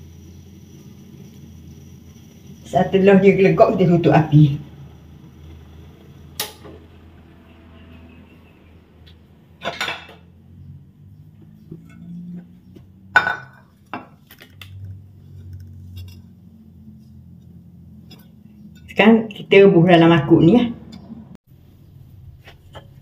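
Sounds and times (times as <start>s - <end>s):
glass dish clinking on stone: 13.2s - 14.1s.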